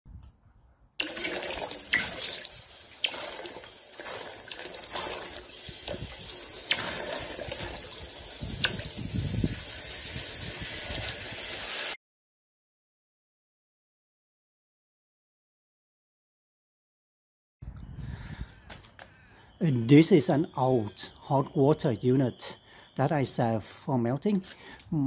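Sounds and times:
molten metal sizzling in water: 1.0s - 12.0s.

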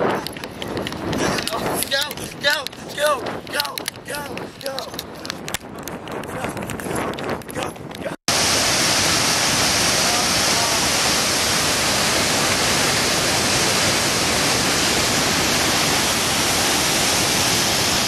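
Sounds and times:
loud rush of falling water: 8.3s - 18.0s.

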